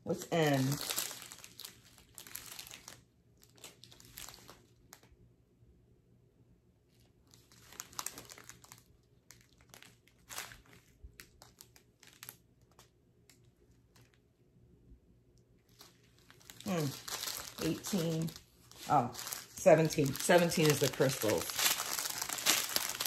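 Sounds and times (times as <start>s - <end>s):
plastic bags crinkling: 0.0s - 5.1s, 7.0s - 12.9s, 15.6s - 23.0s.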